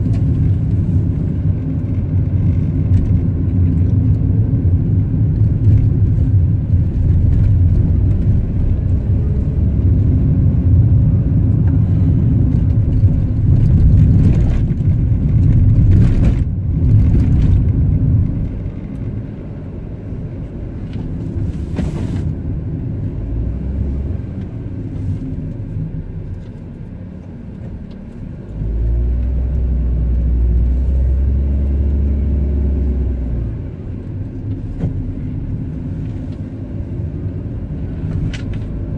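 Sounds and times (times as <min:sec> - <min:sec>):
car engine and tyre rumble: 0:00.0 - 0:38.9.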